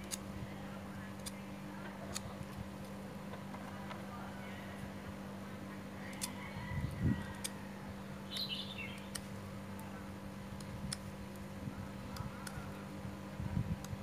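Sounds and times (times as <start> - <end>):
blade clicking and scraping stem: 0.0 - 0.2, 7.2 - 7.6
bird chirping: 8.3 - 9.2.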